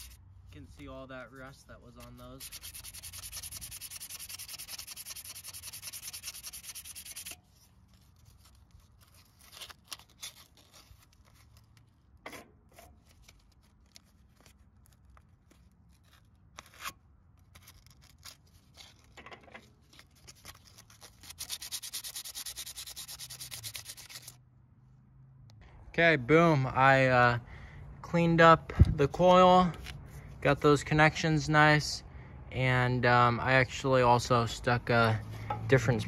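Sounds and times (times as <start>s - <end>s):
sandpaper rubbing on metal: 0.0s - 0.2s, 1.3s - 11.4s, 19.9s - 24.4s.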